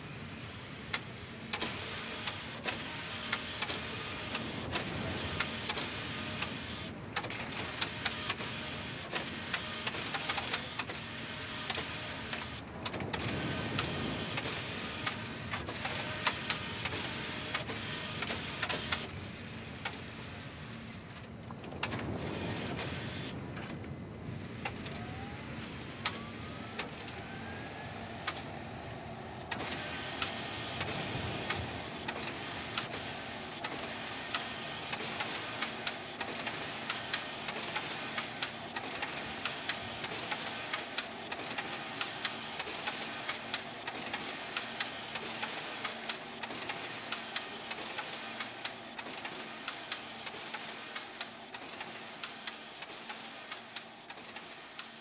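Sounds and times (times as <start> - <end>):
knitting machine whirring: 21.2 - 55.0.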